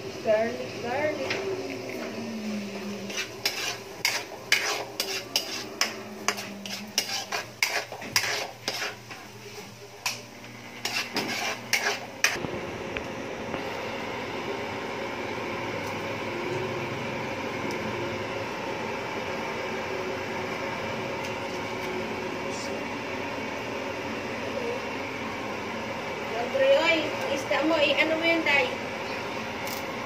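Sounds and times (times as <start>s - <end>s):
food sizzling hiss: 0.0s - 30.0s
metal ladle scraping a wok: 3.0s - 12.4s.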